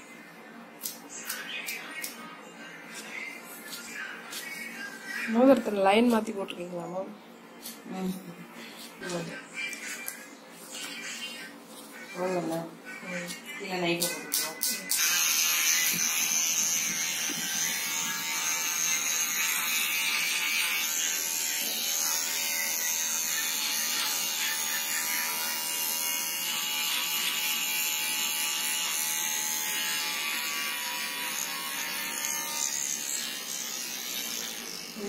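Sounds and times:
electric hair clipper buzzing: 0:13.2 - 0:35.0.

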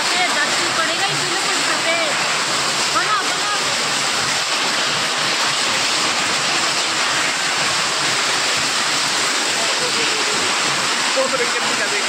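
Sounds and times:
heavy rain and hail on concrete: 0:00.0 - 0:12.0.

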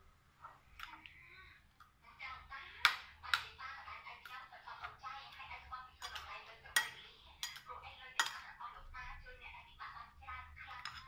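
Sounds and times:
metal spoon scraping a ceramic plate: 0:06.0 - 0:08.5, 0:10.7 - 0:11.0.

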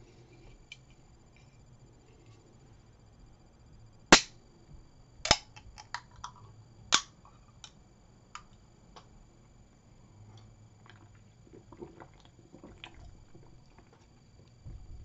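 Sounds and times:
drink can clicking and popping open: 0:05.3 - 0:07.2.

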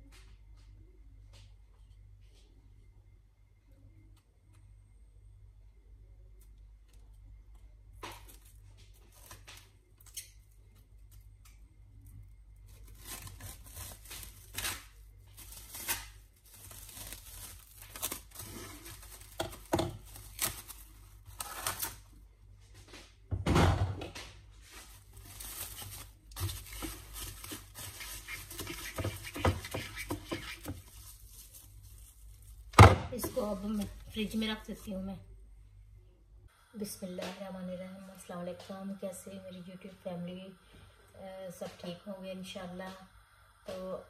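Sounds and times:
cling film crackling and rustling: 0:08.0 - 0:22.0, 0:24.7 - 0:34.8.

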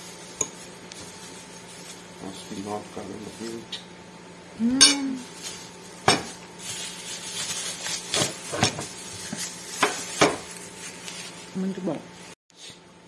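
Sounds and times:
person humming: 0:04.6 - 0:05.3.

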